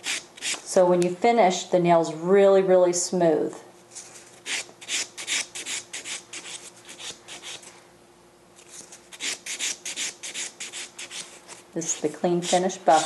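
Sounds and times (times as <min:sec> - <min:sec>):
nail buffer scratching: 0:00.0 - 0:00.6, 0:04.4 - 0:07.7, 0:09.1 - 0:13.0.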